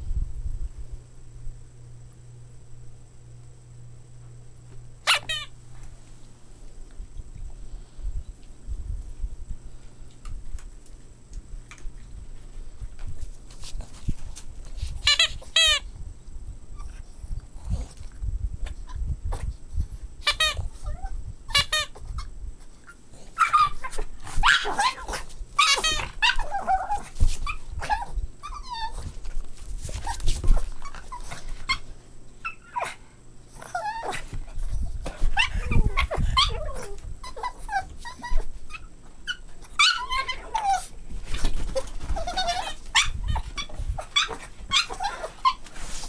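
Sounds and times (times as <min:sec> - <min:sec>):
puppies yipping and whining: 0:22.9 - 0:33.0, 0:33.6 - 0:46.0.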